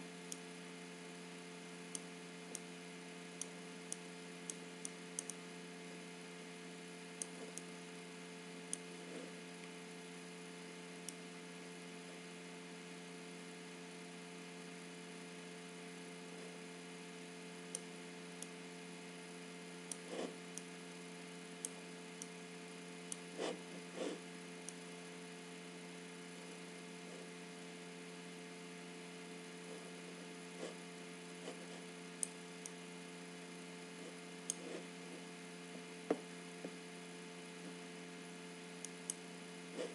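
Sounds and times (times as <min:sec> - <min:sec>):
electrical hum: 0:00.0 - 0:39.9
computer mouse clicks: 0:03.4 - 0:05.4, 0:19.9 - 0:20.7, 0:34.0 - 0:36.8.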